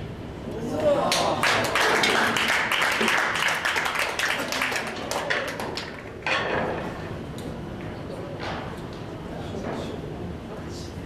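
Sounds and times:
crowd applauding: 0:01.1 - 0:06.2.

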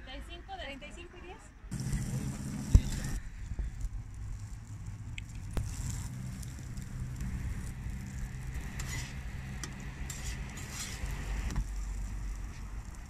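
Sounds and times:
low engine-like hum: 0:01.7 - 0:13.0
tortillas sizzling on griddle: 0:01.7 - 0:13.0
spatula scraping griddle: 0:05.6 - 0:13.0.

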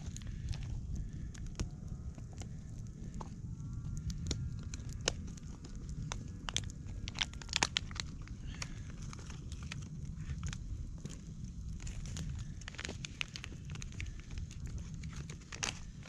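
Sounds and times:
campfire crackling and popping: 0:00.0 - 0:16.0
low steady rumble: 0:00.0 - 0:16.0.

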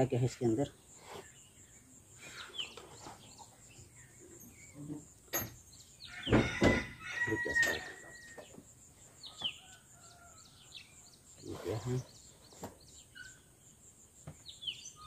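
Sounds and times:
rooster crowing: 0:06.0 - 0:08.4, 0:09.4 - 0:10.8.

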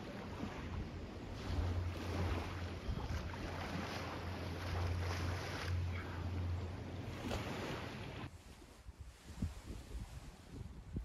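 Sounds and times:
waves lapping on pebbles: 0:00.0 - 0:06.0
wind on microphone: 0:00.0 - 0:11.0
steady low drone: 0:00.7 - 0:08.3.

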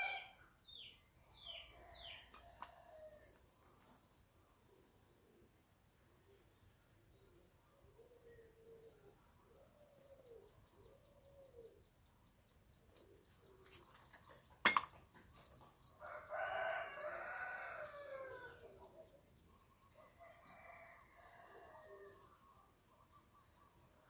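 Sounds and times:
rooster crowing: 0:16.1 - 0:18.6.

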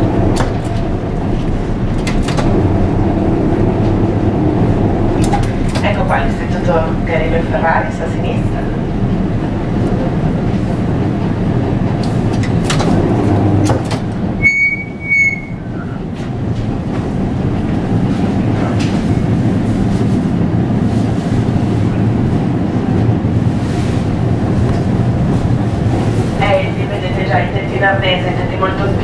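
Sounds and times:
tram wheels and motors rumbling: 0:00.0 - 0:29.0
clicks over rails: 0:00.3 - 0:02.8, 0:05.1 - 0:06.2, 0:11.9 - 0:14.2
short high beeps: 0:14.4 - 0:15.6.

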